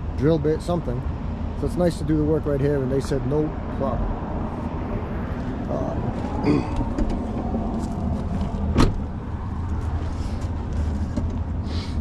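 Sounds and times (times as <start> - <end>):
low outdoor rumble: 0.0 - 12.0
van door shutting: 6.2 - 7.6, 8.6 - 9.2.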